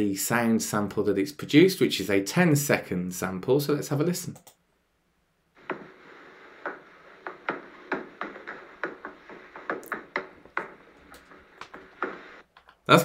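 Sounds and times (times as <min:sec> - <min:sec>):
steady hiss: 0:05.6 - 0:12.5
hammer knocking on wood: 0:06.6 - 0:12.2.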